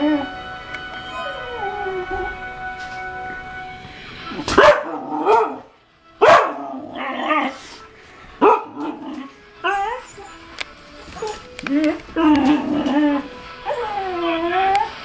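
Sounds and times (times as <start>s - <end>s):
tv sound: 0.0s - 15.0s
dog barking and yowling: 4.5s - 7.6s, 8.4s - 10.4s.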